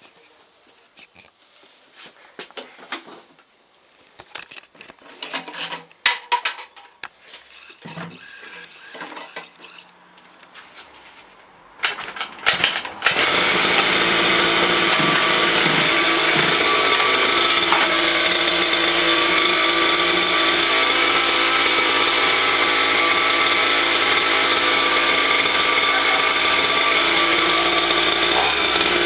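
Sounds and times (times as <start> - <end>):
knocks and handling clatter: 4.2 - 9.6, 11.8 - 13.2
two-stroke engine revving high: 13.1 - 29.0.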